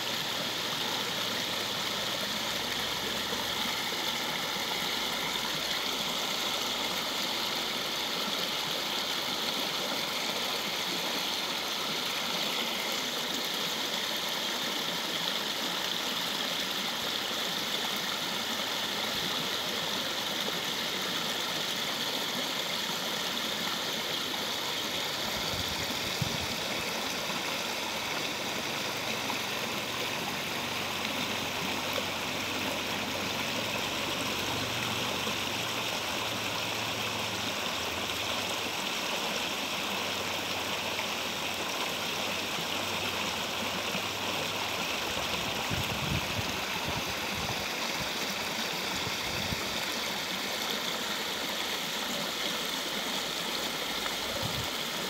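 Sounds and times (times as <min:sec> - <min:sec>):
stream rushing over rocks: 0:00.0 - 0:55.0.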